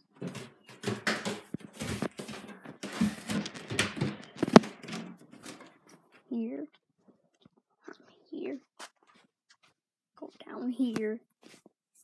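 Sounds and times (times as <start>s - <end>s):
footsteps down stairs: 0.0s - 6.2s
phone rustling: 0.0s - 6.2s.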